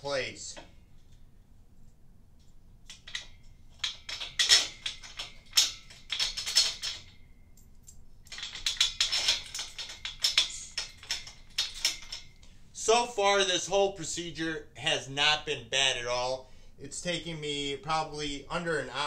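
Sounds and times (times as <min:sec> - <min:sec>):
bolts clinking on metal: 0:02.4 - 0:12.9.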